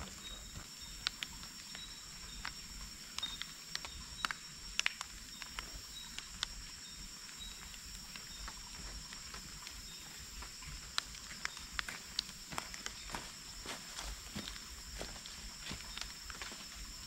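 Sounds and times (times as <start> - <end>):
sharp clicks and crackles: 0.0 - 13.1
high insect drone: 0.0 - 17.0.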